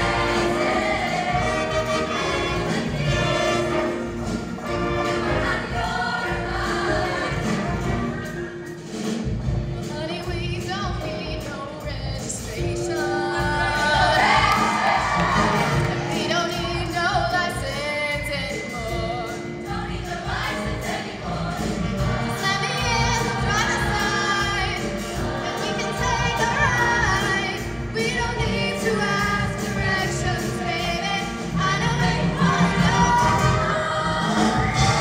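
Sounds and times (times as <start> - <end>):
choir singing with accompaniment: 0.0 - 9.8, 12.4 - 35.0.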